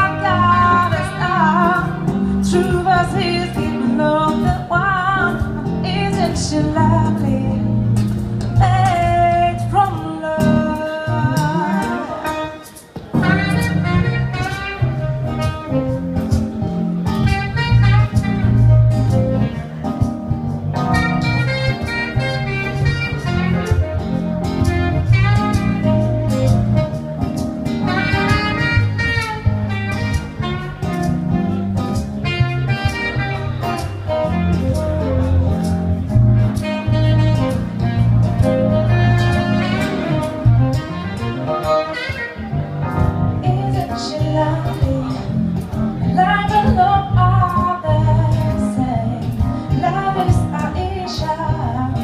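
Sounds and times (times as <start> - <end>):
woman singing: 0.0 - 7.8, 8.6 - 12.7, 43.4 - 45.4, 46.1 - 52.0
acoustic guitar: 0.0 - 52.0
keyboard: 0.0 - 52.0
saxophone: 0.0 - 52.0.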